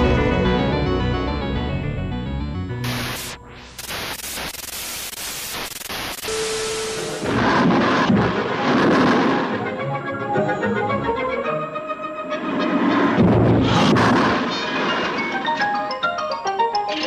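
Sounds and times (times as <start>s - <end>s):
television static hiss: 2.8s - 7.8s
orchestral film score: 7.2s - 16.8s.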